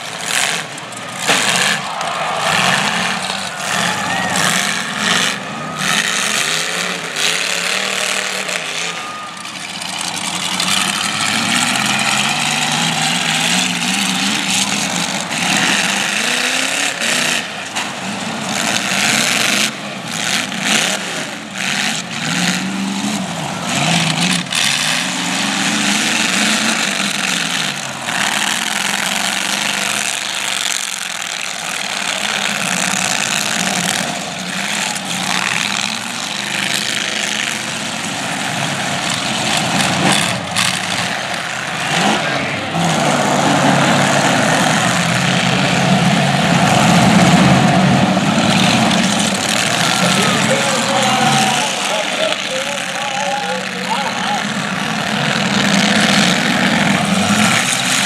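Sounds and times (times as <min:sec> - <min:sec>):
car engines revving: 0:00.0 - 0:58.0
cars crashing bangs: 0:00.1 - 0:18.1.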